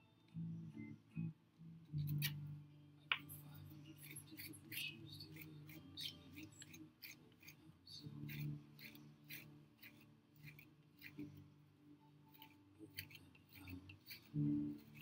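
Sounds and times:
plastic rib scraping clay pot: 0:12.3 - 0:15.0.

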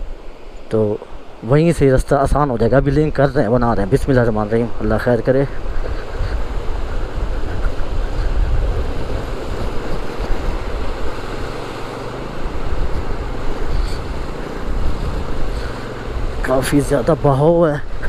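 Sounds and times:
stream water rushing: 0:00.0 - 0:18.0
motorcycle engine running: 0:05.8 - 0:17.4.

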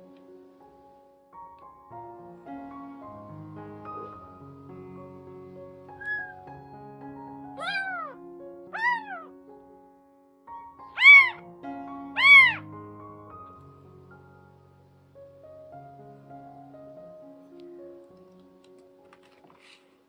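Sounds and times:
soft piano music: 0:00.0 - 0:20.0
kitten meowing: 0:06.0 - 0:06.4, 0:07.6 - 0:09.3, 0:11.0 - 0:11.4, 0:12.2 - 0:12.6.

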